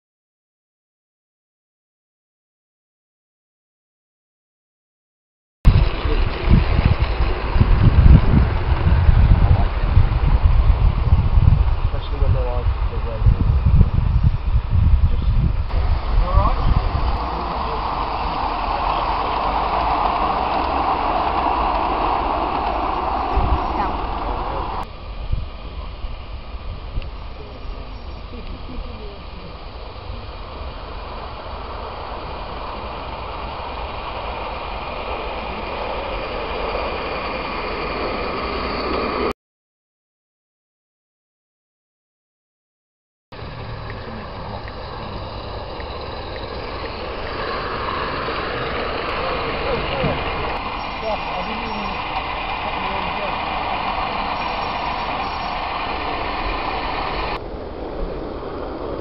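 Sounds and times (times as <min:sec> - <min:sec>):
model steam locomotive running: 0:05.7 - 0:13.8, 0:15.4 - 0:39.3, 0:43.4 - 0:59.0.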